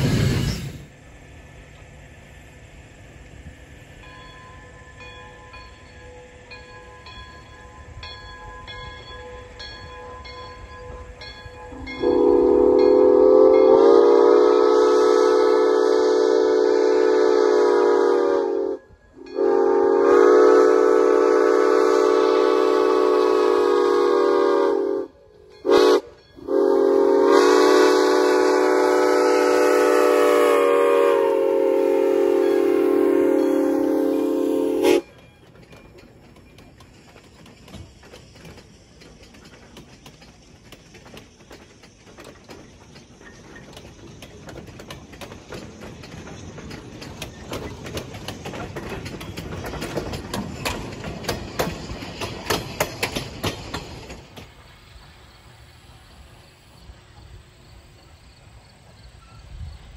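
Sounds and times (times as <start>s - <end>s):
steam hissing: 0.0s - 8.0s, 10.1s - 59.9s
steam whistle blasts: 11.6s - 35.2s.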